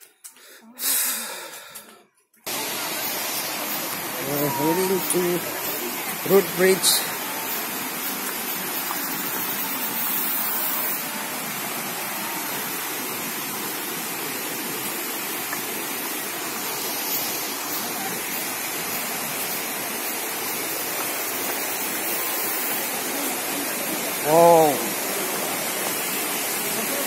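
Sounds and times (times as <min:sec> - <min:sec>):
rushing water roar: 0:02.5 - 0:27.0.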